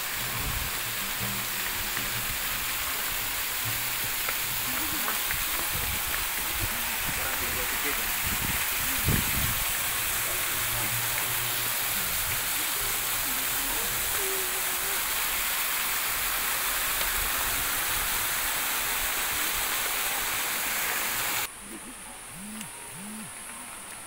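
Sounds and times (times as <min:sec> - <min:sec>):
stream rushing over rocks: 0:00.0 - 0:21.5
faint voices: 0:04.5 - 0:15.3
buzzing insects: 0:20.7 - 0:24.0.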